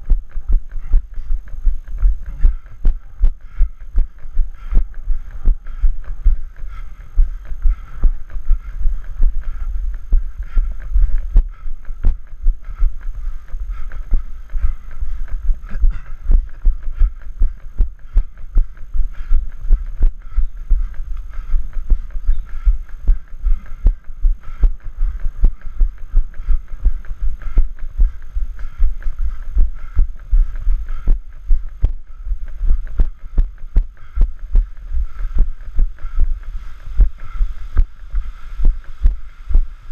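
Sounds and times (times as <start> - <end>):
low rumble: 0.0 - 39.9.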